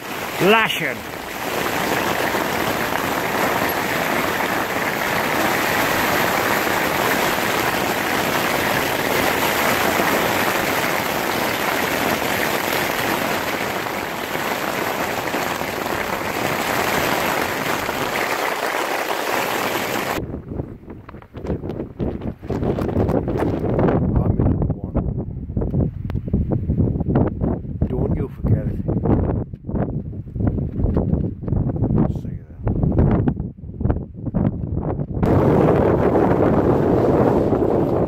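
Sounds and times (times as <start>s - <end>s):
heavy rain on tent fabric: 0.0s - 20.2s, 35.2s - 38.0s.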